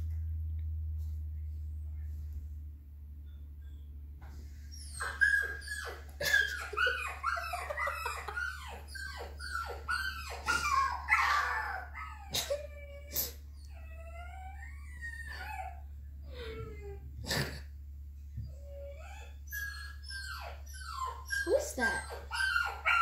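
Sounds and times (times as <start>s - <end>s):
dog whining and whimpering: 4.7s - 17.6s, 18.4s - 23.0s.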